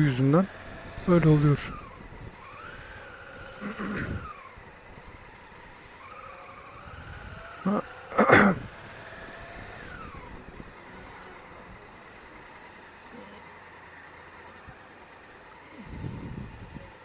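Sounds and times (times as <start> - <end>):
motorcycle engine running: 0.0 - 17.0
wind noise: 0.6 - 5.7, 15.8 - 17.0.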